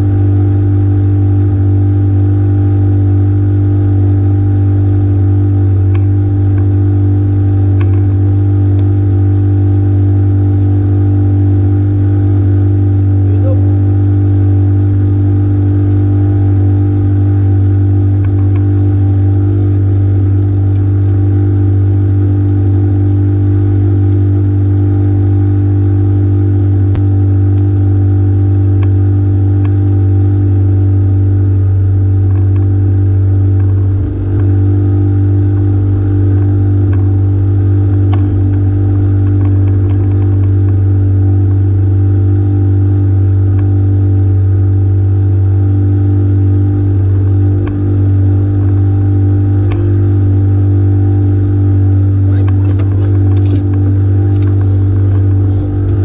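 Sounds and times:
small engine running steadily: 0:00.0 - 0:56.0.

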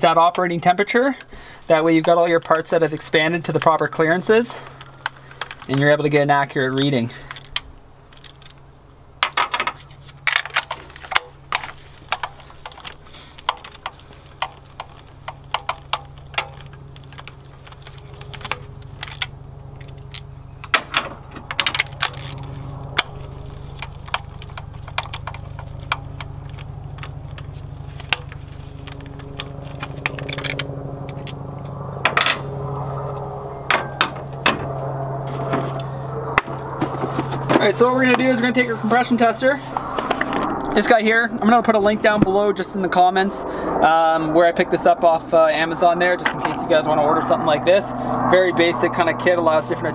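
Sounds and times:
steady low hum: 0:00.0 - 0:49.9
ratchet clicking: 0:10.4 - 0:20.9.

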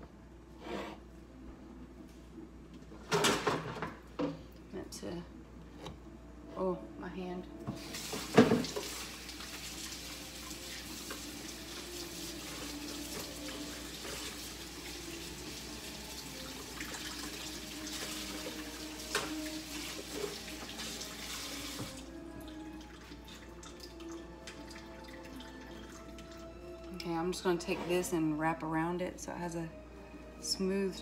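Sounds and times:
tap running into sink: 0:07.7 - 0:09.0.

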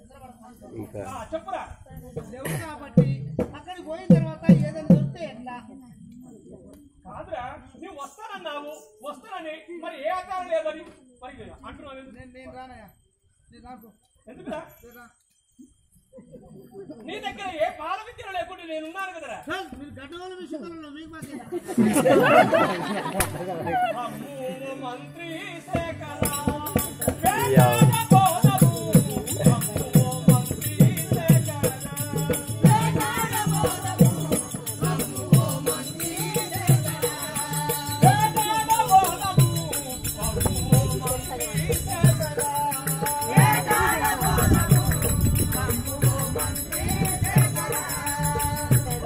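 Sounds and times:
person singing: 0:23.5 - 0:49.0
high metallic jingling: 0:23.7 - 0:49.0
hand drum beating: 0:25.8 - 0:49.0.

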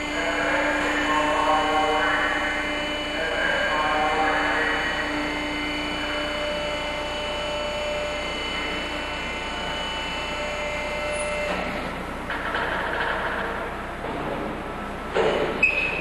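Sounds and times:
dock leveler humming: 0:00.0 - 0:16.0
hydraulic pump whine: 0:00.0 - 0:16.0.

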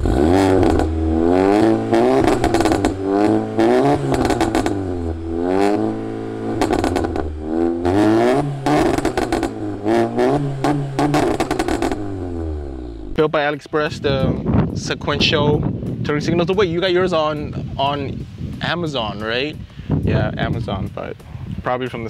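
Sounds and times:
car engine revving: 0:00.0 - 0:13.2.

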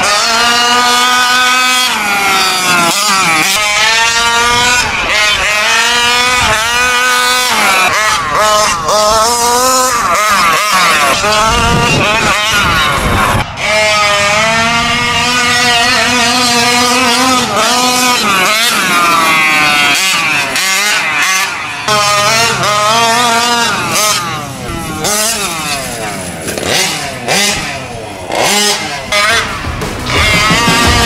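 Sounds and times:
two-stroke engine revving: 0:00.0 - 0:31.0.

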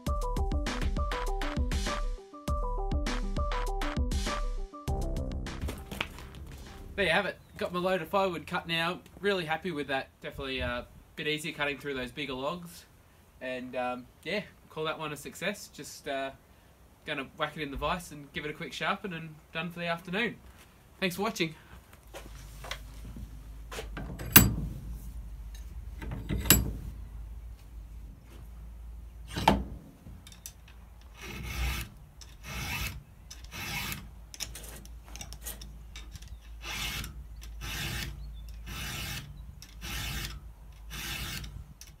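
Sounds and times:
vise clamping knocks: 0:23.9 - 0:26.9
file rasping on chain: 0:31.1 - 0:34.8, 0:36.6 - 0:41.5.

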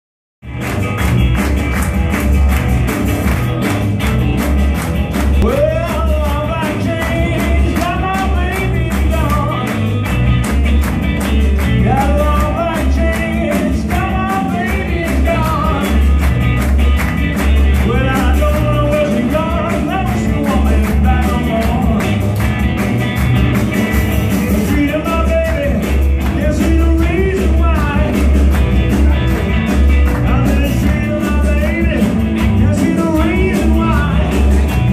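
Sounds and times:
blues rock band playing: 0:00.4 - 0:34.9
person singing: 0:05.4 - 0:09.8, 0:11.8 - 0:16.2, 0:17.8 - 0:22.3, 0:24.4 - 0:29.5, 0:30.1 - 0:34.9.

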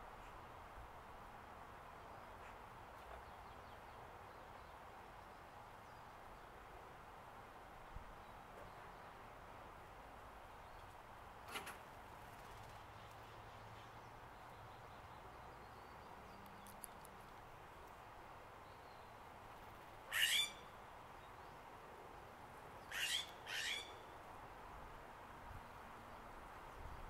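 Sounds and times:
jay harsh calls: 0:20.1 - 0:20.6, 0:22.9 - 0:24.0.

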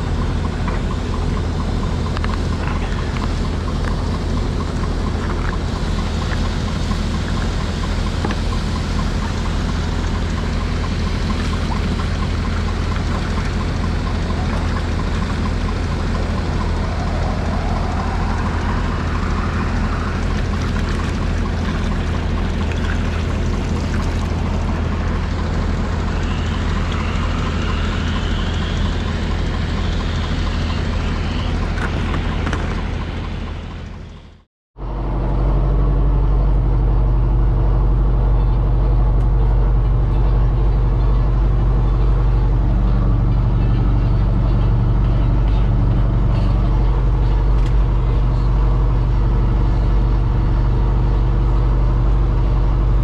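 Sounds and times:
tractor diesel engine running: 0:00.0 - 0:53.0.

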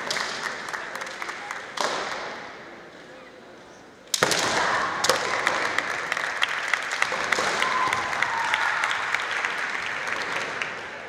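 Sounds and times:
spectators clapping: 0:00.0 - 0:02.4, 0:05.0 - 0:11.0
sharp crack: 0:04.1 - 0:05.8.

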